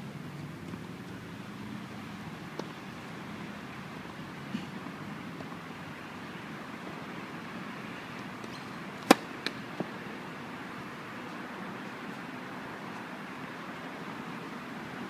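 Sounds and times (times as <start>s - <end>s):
steady outdoor hiss: 0.0s - 15.0s
tennis ball bouncing: 2.5s - 2.8s, 8.4s - 10.0s
racket striking ball: 8.5s - 9.9s.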